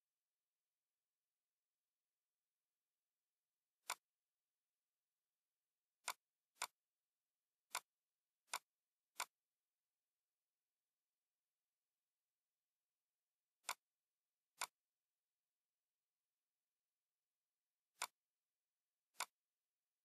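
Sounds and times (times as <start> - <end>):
computer mouse clicks: 3.8 - 4.1, 6.0 - 6.8, 7.7 - 9.4, 13.6 - 14.9, 17.9 - 18.3, 19.1 - 19.5.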